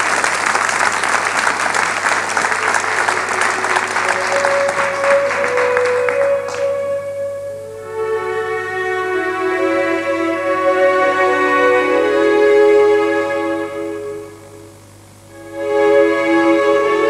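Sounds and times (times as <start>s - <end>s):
audience applauding: 0.0s - 6.8s
orchestral string notes: 2.0s - 17.0s.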